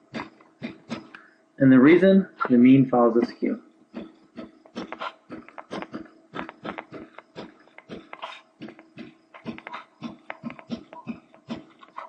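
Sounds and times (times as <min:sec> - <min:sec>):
faint steady hum: 0:00.0 - 0:12.0
stylus scraping on tablet: 0:04.7 - 0:10.7.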